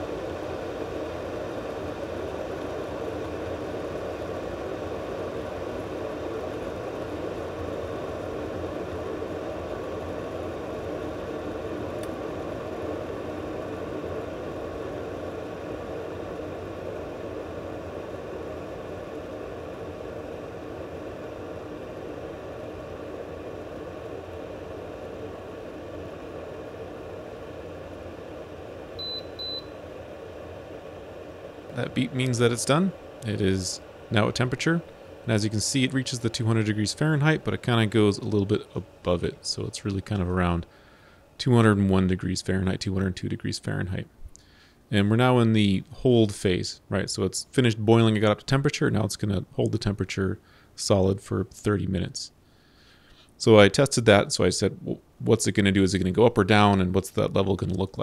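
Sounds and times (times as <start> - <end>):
kettle water heating rumble: 0.0 - 58.0
kettle base high beeps: 29.0 - 29.9.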